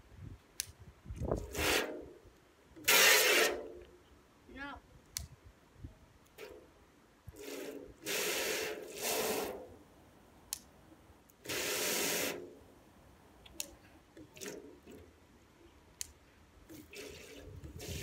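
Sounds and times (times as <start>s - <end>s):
hose nozzle spraying water: 1.4s - 2.1s, 2.8s - 3.8s, 7.3s - 9.7s, 11.4s - 12.6s, 16.7s - 18.0s.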